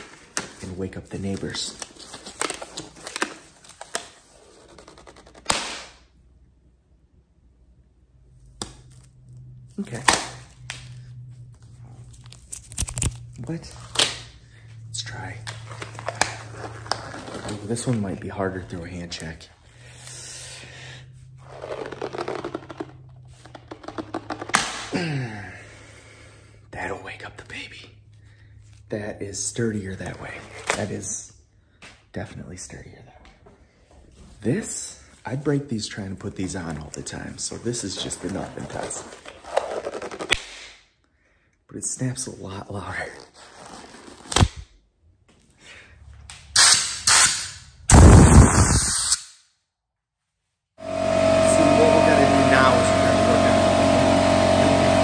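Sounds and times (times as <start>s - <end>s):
glove snapping: 5.3s - 6.1s, 8.4s - 9.2s, 40.2s - 40.9s, 44.3s - 44.7s
glove crackling and squeaking: 8.4s - 19.2s, 21.3s - 24.9s, 36.9s - 40.5s, 43.1s - 44.7s
air blow gun hissing: 46.6s - 49.2s.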